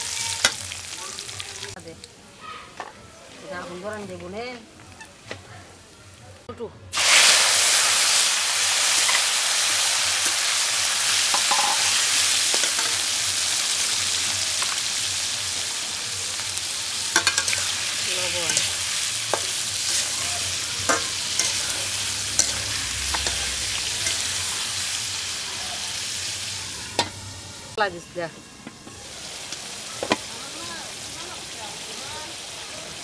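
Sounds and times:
tomatoes sizzling in hot oil: 0.0 - 2.1, 6.9 - 33.0
metal spatula scraping pan: 11.3 - 13.0, 17.1 - 25.3.

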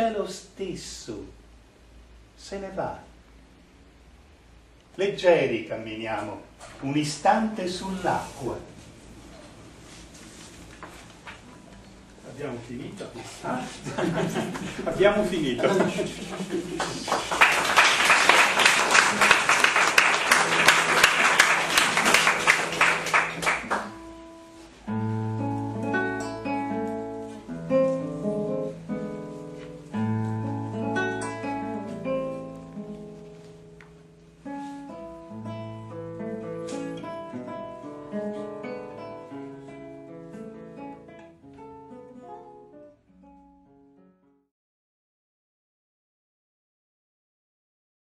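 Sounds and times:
audience applauding: 15.7 - 24.0
solo plucked-string music: 23.9 - 44.2.

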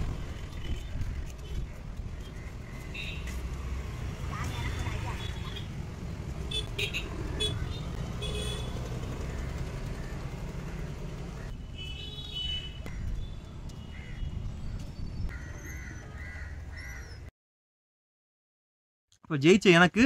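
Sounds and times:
motorbikes and traffic rumble: 0.0 - 17.2
crows cawing: 15.3 - 17.2.

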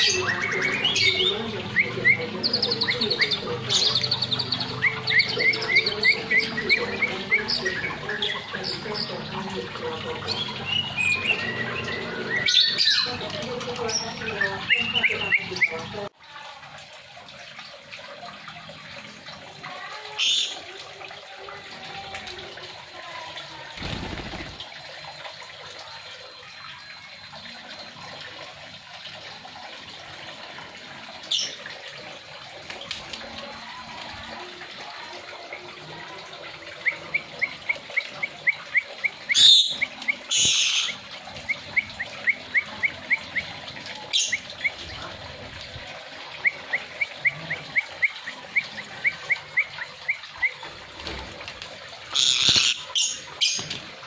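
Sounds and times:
parrot screeches: 52.1 - 52.9
parrot chirps: 52.1 - 53.2.

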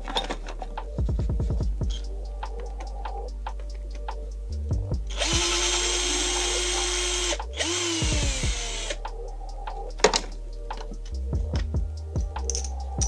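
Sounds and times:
electric drill-driver spinning: 5.1 - 9.0.

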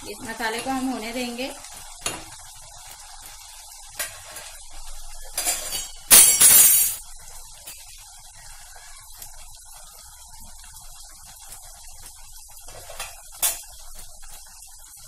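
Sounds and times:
paste sizzling in hot oil: 0.0 - 6.3, 7.0 - 15.0
metal spoon clinking on pan: 5.4 - 7.0, 12.8 - 13.7.

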